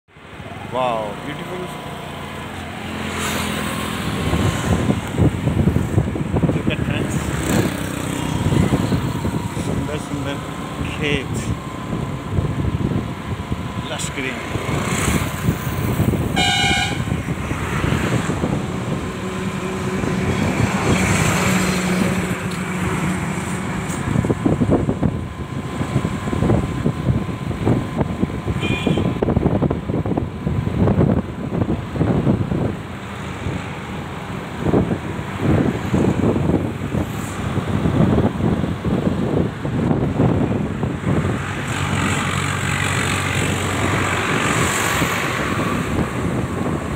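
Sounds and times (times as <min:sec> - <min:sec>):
road vehicle rumbling: 0:00.1 - 0:46.9
wind buffeting microphone: 0:01.5 - 0:46.9
short horn toot: 0:16.4 - 0:17.2, 0:28.6 - 0:29.2.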